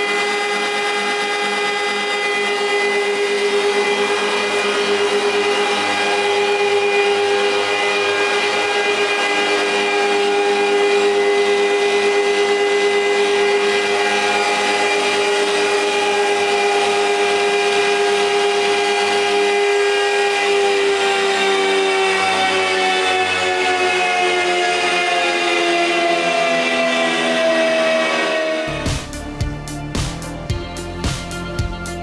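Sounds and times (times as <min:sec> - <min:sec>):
low pulsing: 0:00.0 - 0:20.6, 0:27.8 - 0:32.0
planer machine hum and whine: 0:00.0 - 0:32.0.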